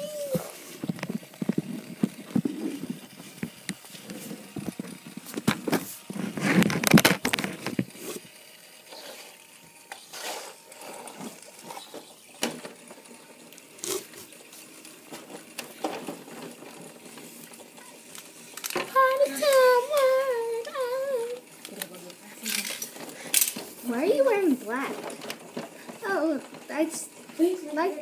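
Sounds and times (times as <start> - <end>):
plastic toys clicking and knocking: 6.6 - 8.0, 10.8 - 28.0.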